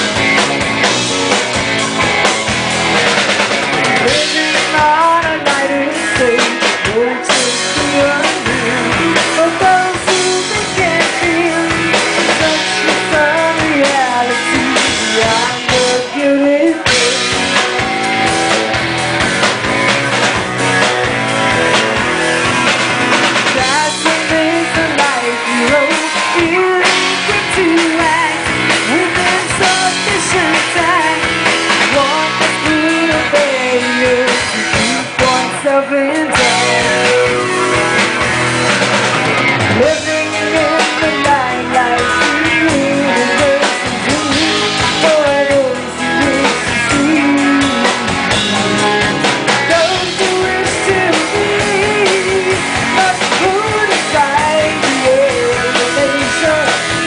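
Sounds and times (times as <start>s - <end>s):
bass guitar: 0.0s - 57.0s
drum kit: 0.0s - 57.0s
electric guitar: 0.0s - 57.0s
woman singing: 4.0s - 17.7s, 23.5s - 37.9s, 39.7s - 57.0s.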